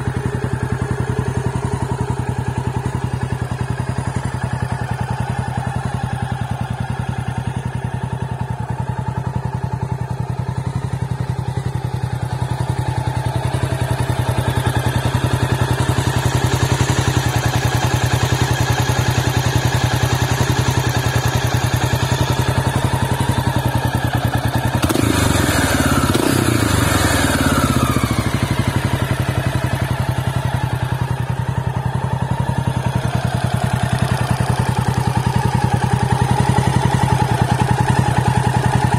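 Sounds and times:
motorcycle engine idling: 0.0 - 38.9.

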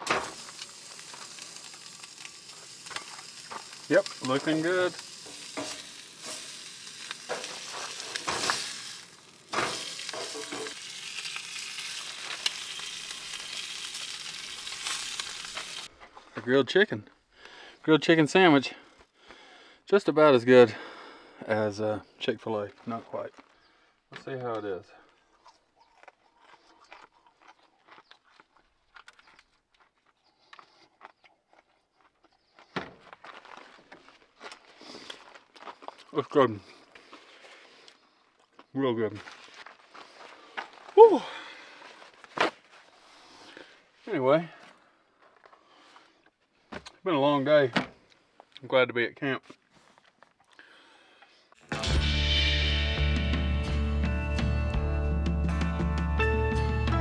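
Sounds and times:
food sizzling in a pan: 0.0 - 15.9
rustling of food and paper: 0.2 - 15.9, 26.0 - 44.0, 49.5 - 50.7
spatula scraping pan: 5.2 - 10.8.

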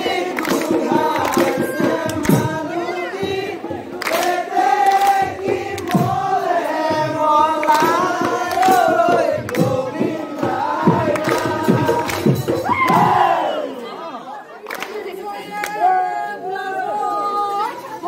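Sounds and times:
sharp percussive beats: 0.0 - 13.5
men singing a chanted folk song: 0.0 - 13.6.

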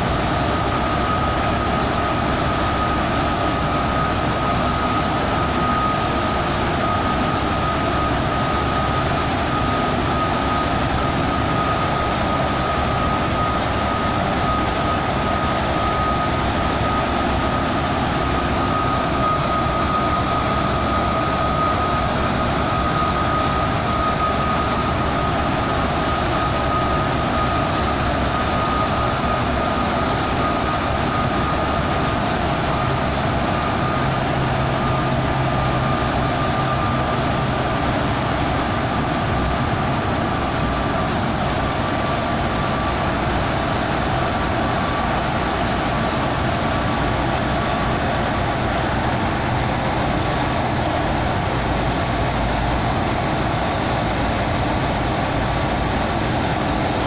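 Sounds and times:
bus tyre and engine noise: 0.0 - 57.0
thin high whine: 0.0 - 57.0.

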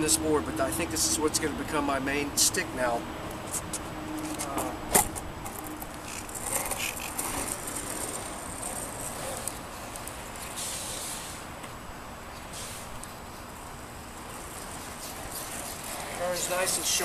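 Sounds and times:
skateboard wheels rolling on asphalt: 0.2 - 17.0
skateboard clacking on asphalt: 3.6 - 10.6, 14.2 - 17.0.

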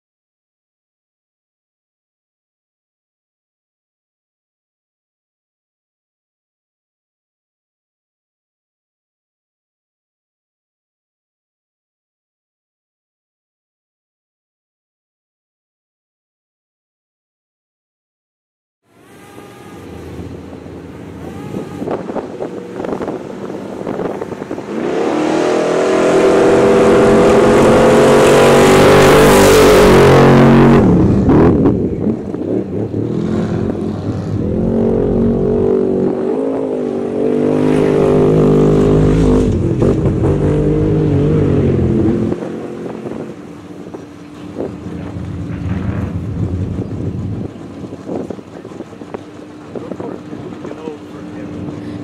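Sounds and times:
truck engine revving: 19.2 - 52.0.

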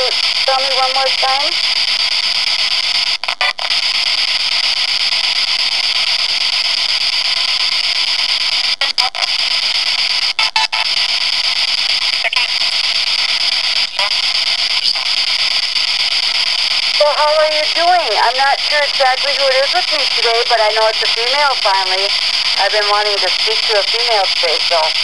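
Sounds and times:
radio static hiss: 0.0 - 25.0
snatches of radio broadcast: 0.0 - 25.0.

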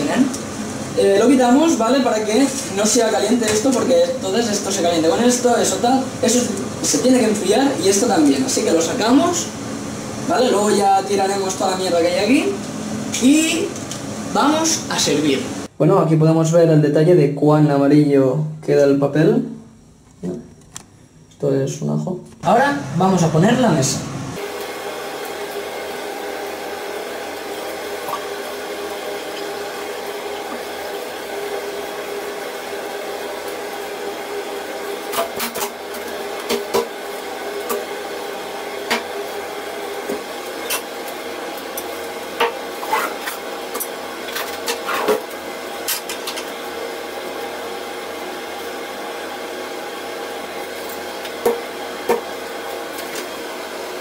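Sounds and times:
extractor hood fan running: 0.0 - 16.1, 16.9 - 54.0.

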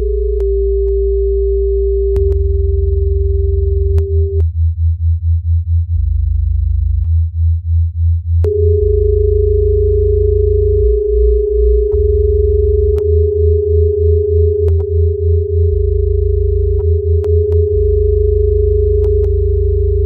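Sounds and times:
steady sine tone: 0.0 - 20.0
throbbing synth bass tone: 0.0 - 20.0
faint high whine: 8.4 - 20.0.

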